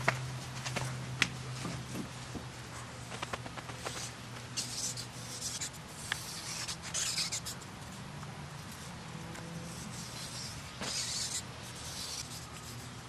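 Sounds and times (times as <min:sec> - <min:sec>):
kittens' paws scrabbling on blanket: 0:03.1 - 0:04.1.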